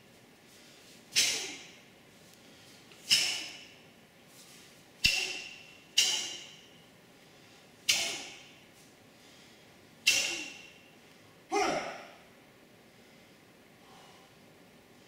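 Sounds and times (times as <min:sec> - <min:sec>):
uniform snapping sharply: 0:05.0 - 0:06.6, 0:10.1 - 0:10.7.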